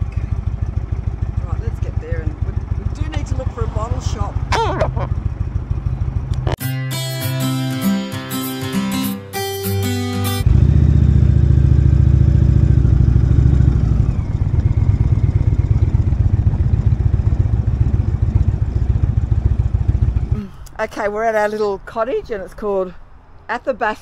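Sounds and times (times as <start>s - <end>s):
motorcycle engine throbbing: 0.0s - 6.6s, 10.4s - 20.5s
music: 6.6s - 10.5s.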